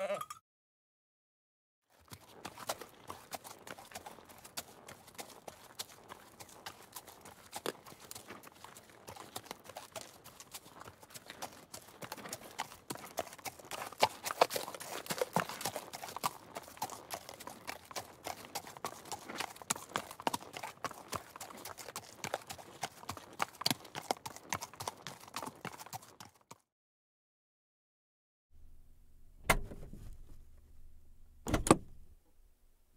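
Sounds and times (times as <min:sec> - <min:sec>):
horses hooves clip-clopping: 0:01.9 - 0:26.6.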